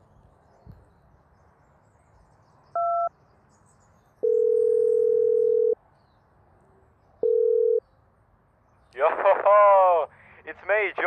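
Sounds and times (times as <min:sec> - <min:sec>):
phone ringing tone: 0:02.8 - 0:03.1, 0:04.2 - 0:05.8, 0:07.2 - 0:07.8.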